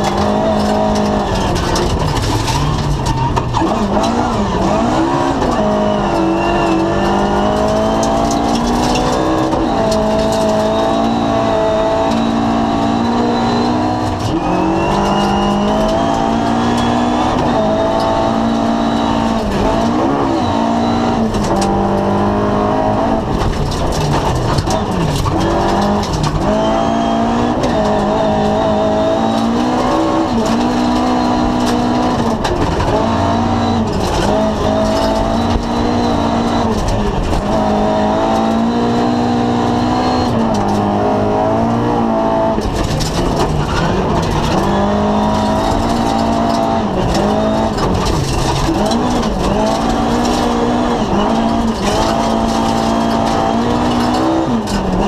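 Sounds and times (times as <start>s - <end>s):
rattles and knocks in cabin: 0.0s - 4.2s, 23.2s - 26.5s, 30.4s - 33.2s, 42.6s - 55.0s
rally car engine at full throttle: 0.0s - 55.0s.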